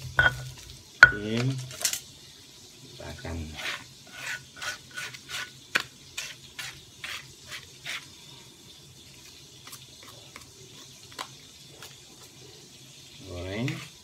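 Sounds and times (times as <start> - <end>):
pestle scraping in stone mortar: 0.1 - 1.2, 3.6 - 8.1.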